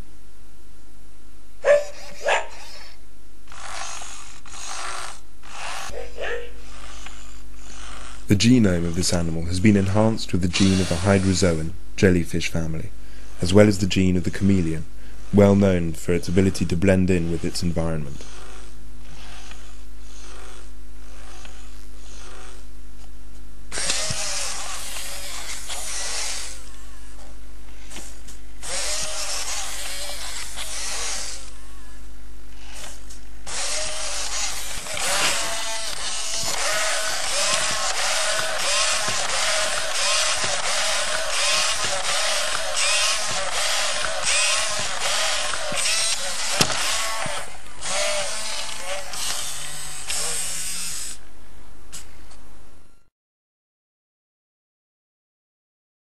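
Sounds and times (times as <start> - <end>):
steady low hum: 0.0 - 53.1
robot dog barks: 1.6 - 2.7, 5.9 - 6.6
robot dog yelps: 1.6 - 2.8, 5.9 - 6.6
servo motors whirring: 2.1 - 11.6, 15.2 - 22.7, 23.7 - 32.0, 32.6 - 51.2
breathy hissing sounds: 13.0 - 13.8.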